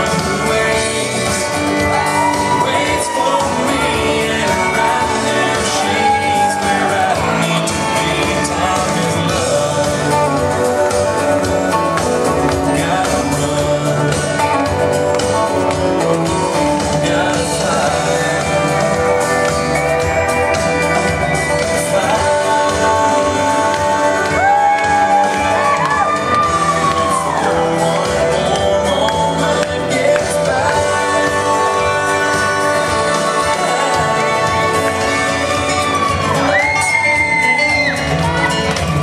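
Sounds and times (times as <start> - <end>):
song over sound system: 0.0 - 39.0.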